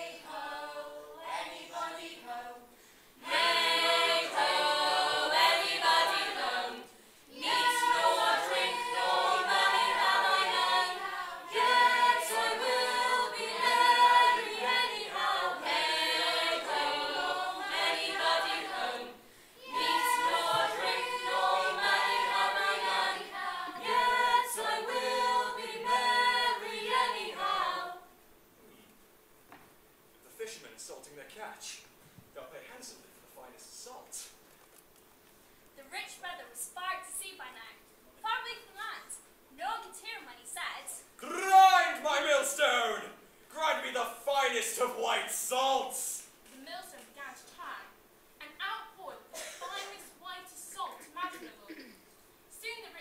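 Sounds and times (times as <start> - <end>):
chorus singing: 0.0 - 28.2.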